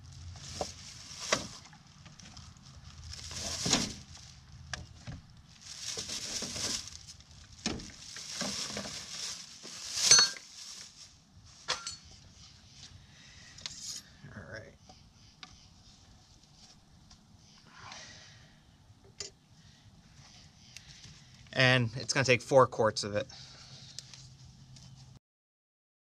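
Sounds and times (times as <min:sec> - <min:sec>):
plastic bag rustling: 0:00.0 - 0:12.3.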